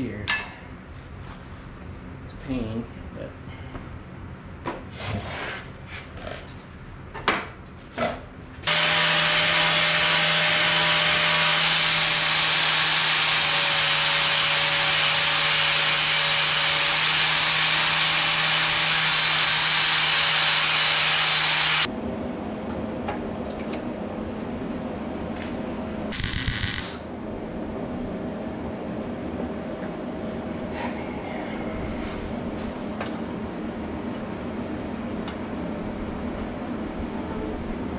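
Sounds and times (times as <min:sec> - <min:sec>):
angle grinder grinding steel: 0:08.7 - 0:21.9, 0:26.2 - 0:27.0.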